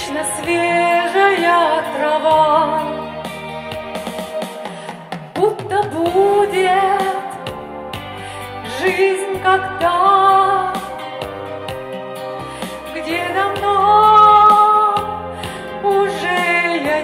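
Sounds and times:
instrumental accompaniment with bass: 0.0 - 17.0
woman singing pop song: 0.0 - 17.0.

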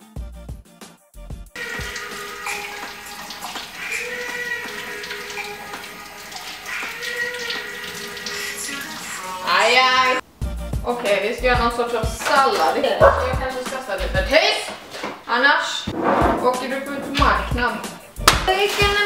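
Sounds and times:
background music with held notes: 0.0 - 14.4.

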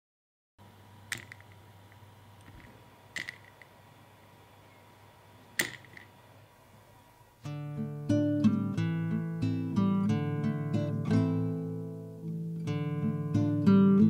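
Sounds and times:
faint steady hum: 0.6 - 14.0
finger tapping figurine: 1.1 - 1.6, 2.4 - 3.7
ringing rattle: 2.5 - 3.7.

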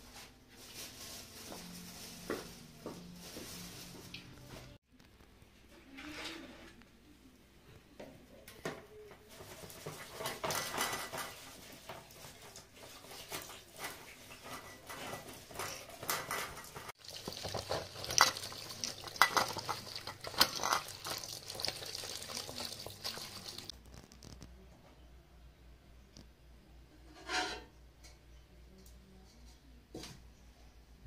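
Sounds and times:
hands rubbing leaves in water: 9.7 - 23.8
small splashes and knocks: 10.4 - 23.7
thin stream of running water: 16.8 - 23.7.

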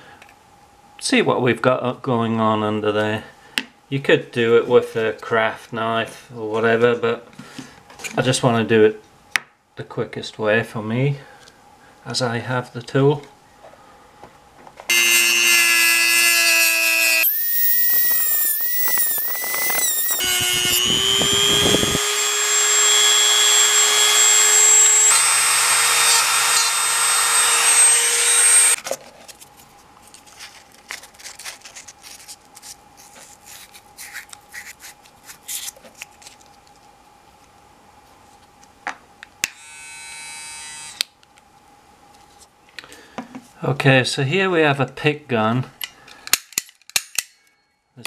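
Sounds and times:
electric toothbrush buzzing: 14.9 - 28.8, 39.6 - 41.0
rotary tool cutting plastic: 14.9 - 28.8.

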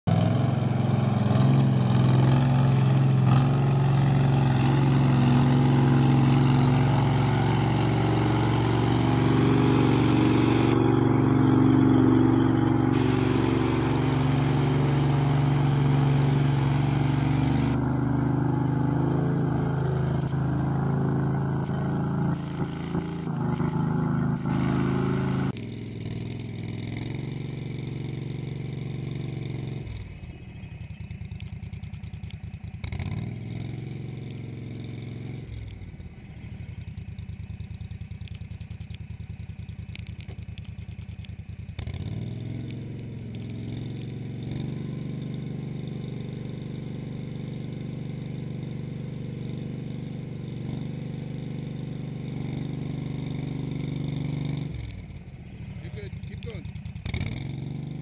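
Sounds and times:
vehicle engine running: 0.0 - 58.0
tracks churning muddy water: 8.0 - 17.8.

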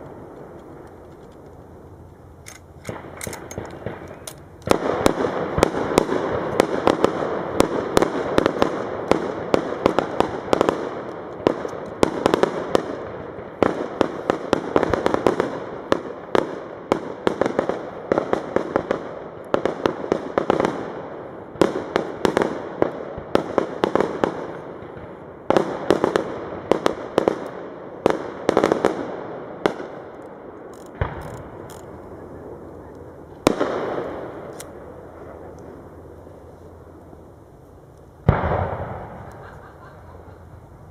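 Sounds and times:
rushing firework crackle: 0.0 - 2.2, 2.9 - 40.9
firework shells bursting: 0.0 - 16.1, 28.1 - 36.5.

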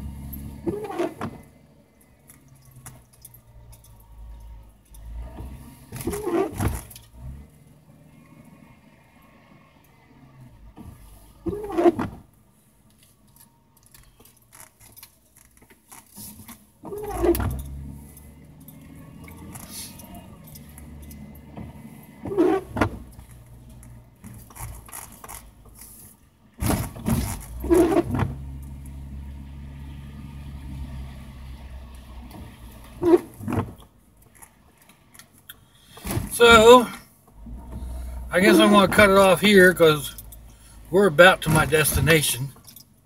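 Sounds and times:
windshield wipers sweeping: 0.0 - 1.6, 4.2 - 7.8, 10.4 - 12.3, 15.8 - 34.5, 35.9 - 42.5
car engine low hum: 0.0 - 43.0.

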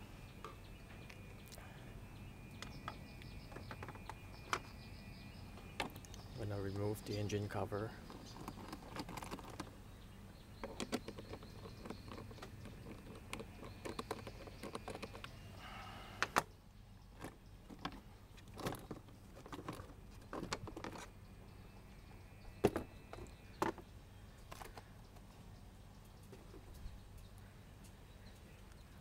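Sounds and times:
plastic clicks and rattles: 8.1 - 9.7, 10.6 - 15.4, 17.2 - 21.1.

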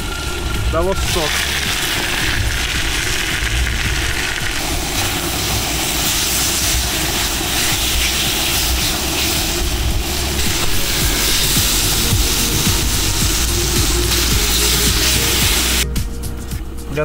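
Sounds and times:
low rumble: 0.0 - 17.0
meat sizzling in hot fat: 1.0 - 15.8.

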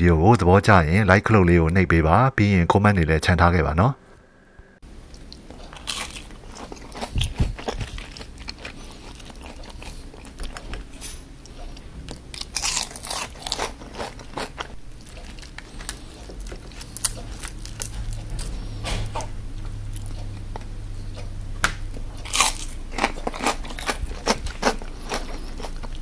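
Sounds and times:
crisp crunches of chewing: 5.1 - 19.3, 19.9 - 26.0.

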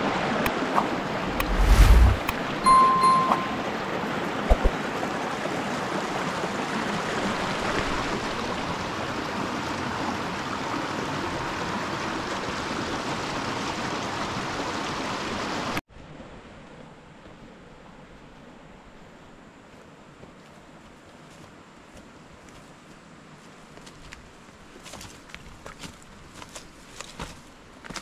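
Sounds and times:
flowing stream water: 0.0 - 17.3.

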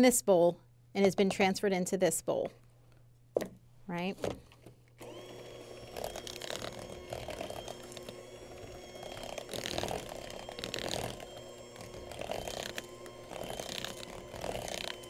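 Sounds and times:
electric hand mixer churning dough: 5.0 - 15.0.

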